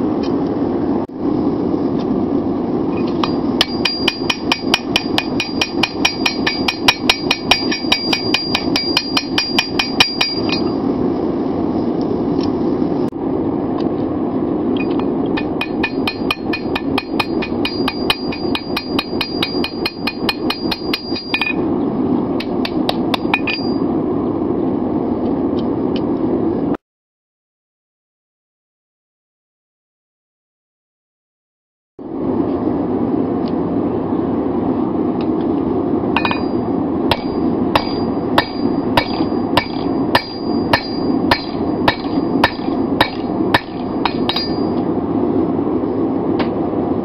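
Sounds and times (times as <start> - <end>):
hammer striking anvil: 3.2 - 10.8, 14.8 - 21.6, 22.4 - 23.8, 36.2 - 44.8.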